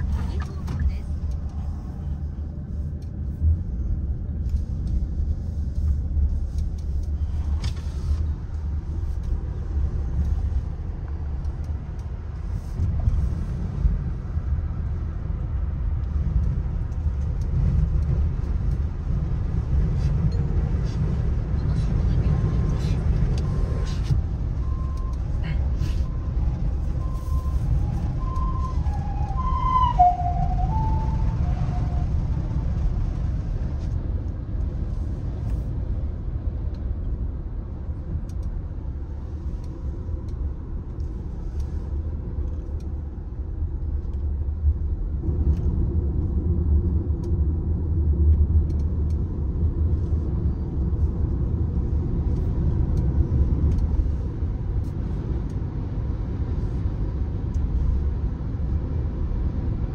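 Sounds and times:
car road rumble: 0.0 - 59.9
ambulance two-tone siren: 27.0 - 32.2.

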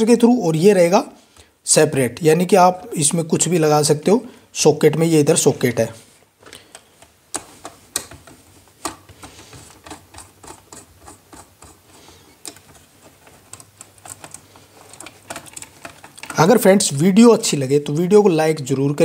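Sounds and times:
screwdriver clicks and scrapes: 6.7 - 16.5.

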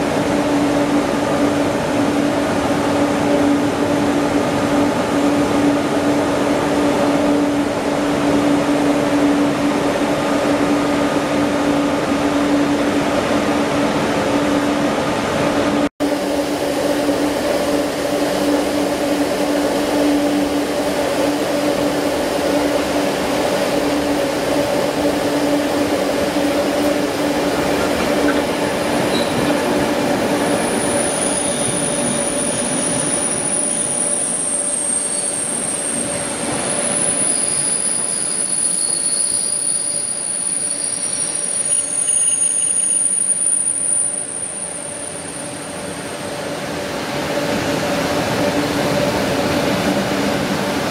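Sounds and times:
train coaches rolling: 17.6 - 50.9
wheel and brake squeals: 29.0 - 29.6, 30.4 - 46.5.

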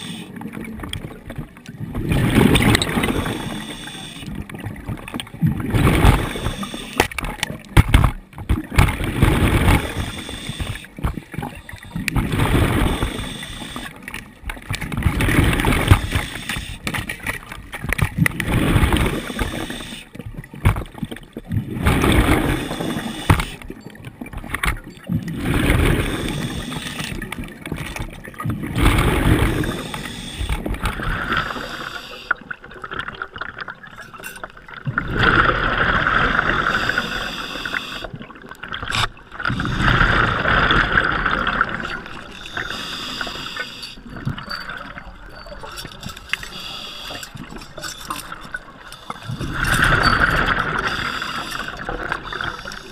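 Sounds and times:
inhale through regulator: 0.0 - 0.3, 3.0 - 4.3, 6.1 - 7.1, 9.8 - 11.0, 12.7 - 14.0, 19.0 - 20.1, 22.4 - 23.6, 25.8 - 27.2, 29.5 - 32.4, 36.5 - 38.1, 42.4 - 44.0, 46.4 - 47.3, 50.8 - 52.9
exhaled bubbles gurgling underwater: 0.0 - 52.9.

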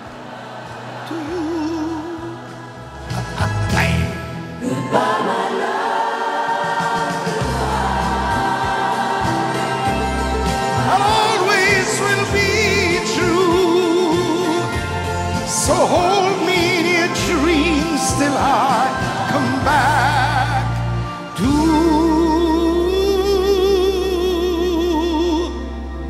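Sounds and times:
voices singing with vibrato: 0.0 - 25.7
live band playing slow ballad: 7.3 - 26.0.

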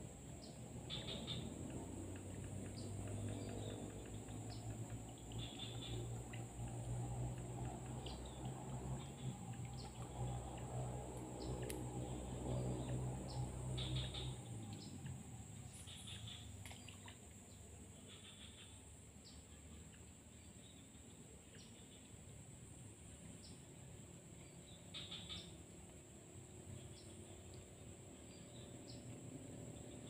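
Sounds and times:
low hum: 0.0 - 24.8.

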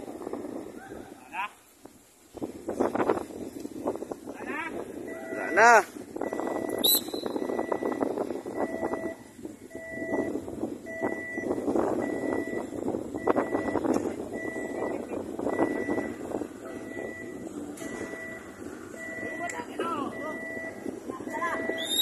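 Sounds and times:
two-pitched warning beeps: 5.0 - 22.0.

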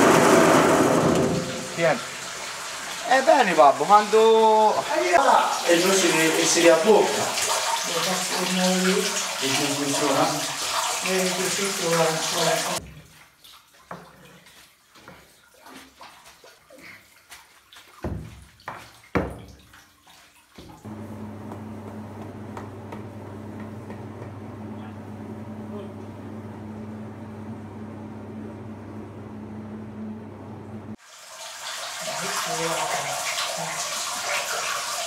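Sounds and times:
steady machine hum: 20.9 - 31.0.

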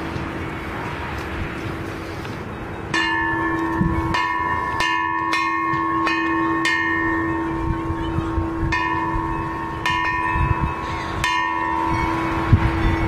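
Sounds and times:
metal bell ringing: 2.8 - 13.0.

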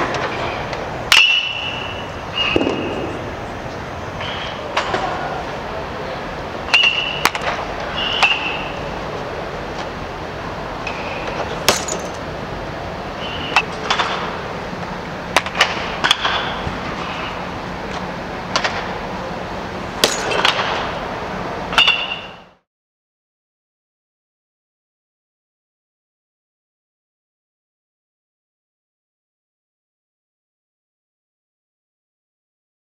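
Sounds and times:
steady low hum: 0.0 - 22.6
metallic pings and clanks: 21.8 - 22.4.

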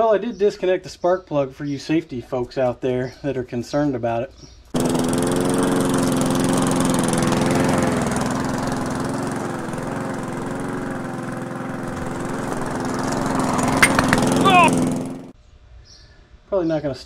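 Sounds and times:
lawn mower engine running: 4.8 - 15.4.

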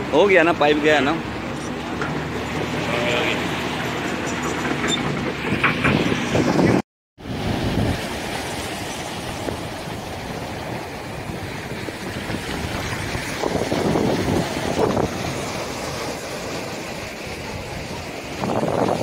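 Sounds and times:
surf on pebble beach: 0.0 - 19.0
wind on microphone: 4.8 - 19.0.

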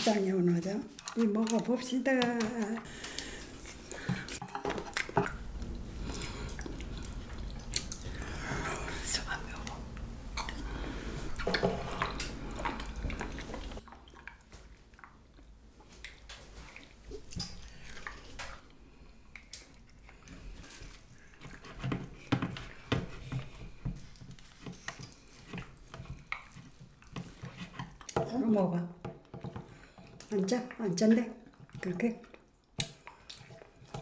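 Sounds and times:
utensils clicking on dishes: 0.9 - 3.3
wet chewing and lip smacks: 2.9 - 8.4, 11.3 - 22.9, 24.0 - 28.2, 31.4 - 34.0.

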